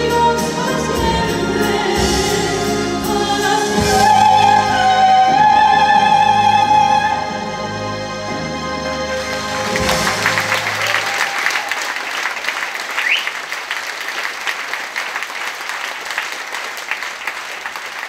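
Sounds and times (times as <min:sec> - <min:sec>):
audience applauding: 0:09.1 - 0:18.0.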